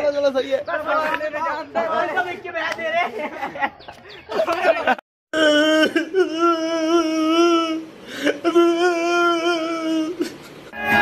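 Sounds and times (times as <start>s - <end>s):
man wailing: 5.3s - 11.0s.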